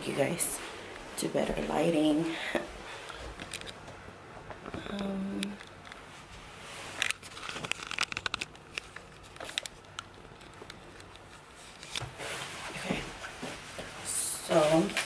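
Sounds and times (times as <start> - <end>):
clicks and crinkles: 3.1 - 6.1, 6.8 - 13.9.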